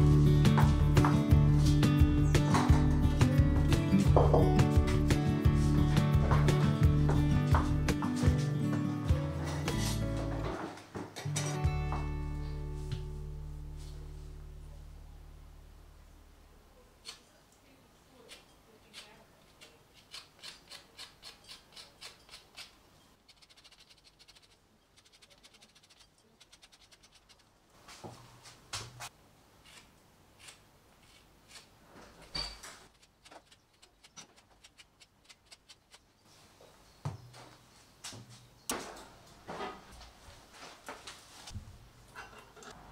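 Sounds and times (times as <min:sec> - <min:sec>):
soft knocks: 0:04.1 - 0:04.6
zester scraping lemon peel: 0:18.2 - 0:27.6.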